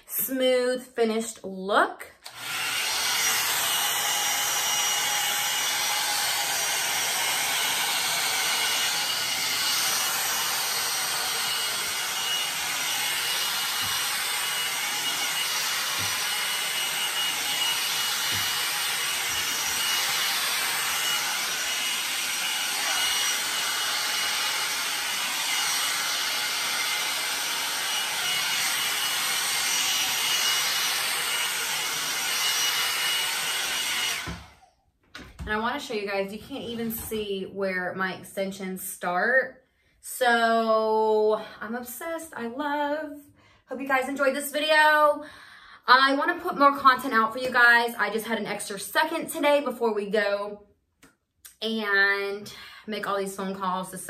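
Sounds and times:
blow dryer brush blowing: 2.2 - 37.3.

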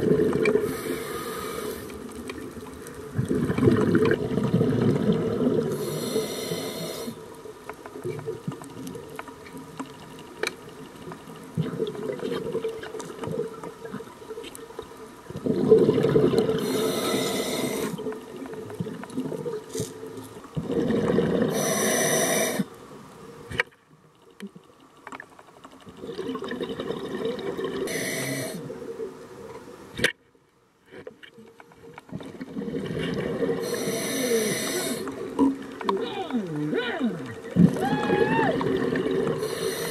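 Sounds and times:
gurgling exhaled bubbles: 0.0 - 6.2, 15.3 - 18.1, 20.6 - 22.6, 25.9 - 28.8, 32.1 - 35.8, 37.2 - 39.9
air hissing through regulator: 0.6 - 1.9, 5.7 - 7.2, 16.6 - 18.0, 21.5 - 22.7, 27.9 - 28.6, 33.6 - 35.1, 39.4 - 39.9.

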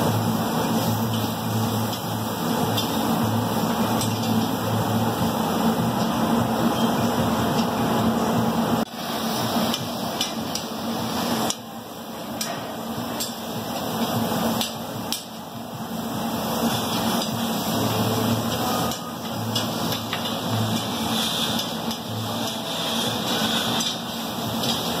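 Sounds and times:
food sizzling: 0.0 - 25.0
ventilation hum: 0.0 - 25.0
metal sticks scraping on griddle: 16.6 - 25.0.

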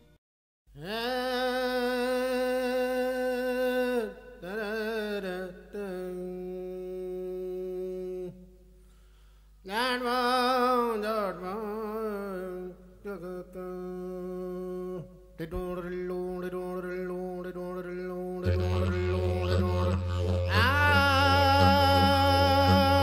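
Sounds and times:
bagpipe music: 18.4 - 23.0.

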